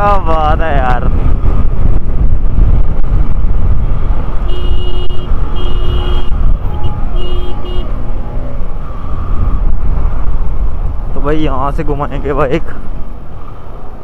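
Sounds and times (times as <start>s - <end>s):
wind buffeting microphone: 0.0s - 14.0s
vehicle horn honking: 4.4s - 8.0s.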